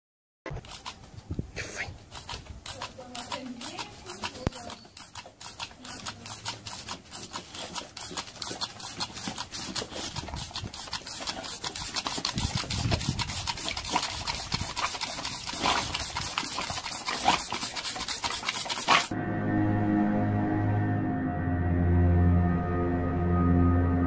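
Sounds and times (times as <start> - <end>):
dog grunting: 1.6 - 19.1.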